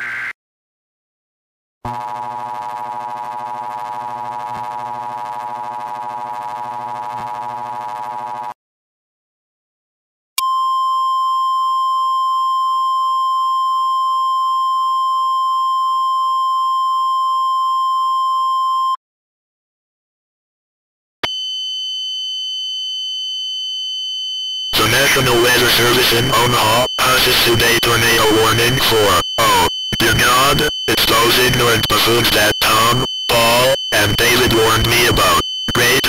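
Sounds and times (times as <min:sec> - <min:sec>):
steady warning alarm tone: 0:21.2 - 0:36.0
distorted two-tone alert signal: 0:24.7 - 0:36.0.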